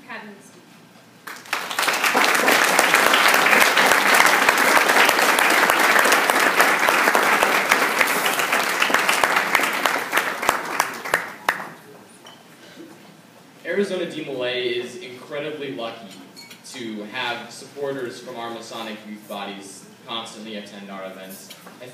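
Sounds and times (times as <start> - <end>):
audience applauding: 1.2 - 11.9.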